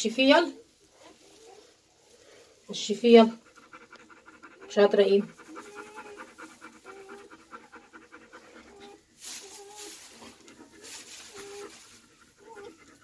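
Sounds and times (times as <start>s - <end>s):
dog panting rapidly: 3.0s - 9.2s, 10.2s - 13.0s.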